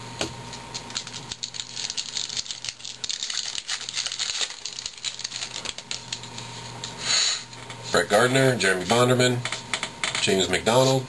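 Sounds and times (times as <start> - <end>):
crinkling: 0.6 - 6.9.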